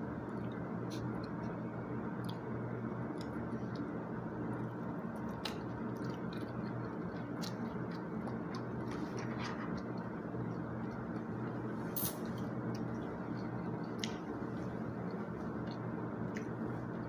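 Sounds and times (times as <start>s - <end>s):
steady background hum: 0.0s - 17.0s
person chewing food: 5.1s - 11.7s, 12.4s - 17.0s.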